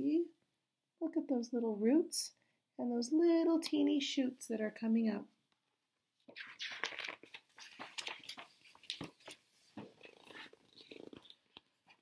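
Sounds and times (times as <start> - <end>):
paper pages rustling: 6.3 - 11.4.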